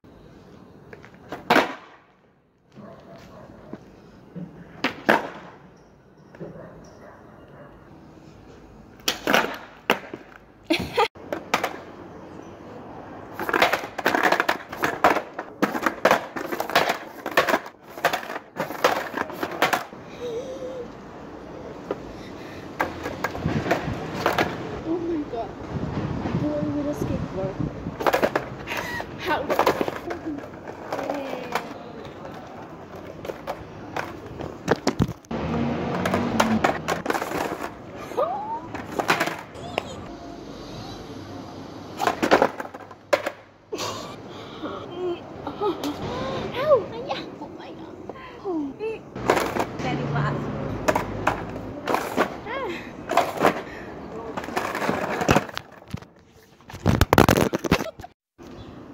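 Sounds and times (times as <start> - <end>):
skateboard knocking on pavement: 0.9 - 2.0, 4.8 - 5.5, 9.0 - 12.0, 13.4 - 19.9, 22.8 - 24.7, 29.4 - 35.3, 35.9 - 37.8
phone being handled: 55.8 - 58.1.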